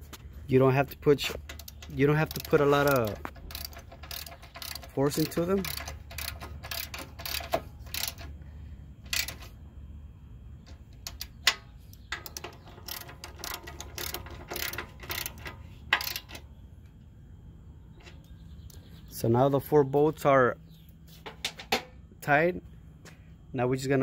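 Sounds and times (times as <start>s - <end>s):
ratchet wrench clicking: 0.9s - 8.4s, 9.0s - 9.6s, 10.7s - 16.4s.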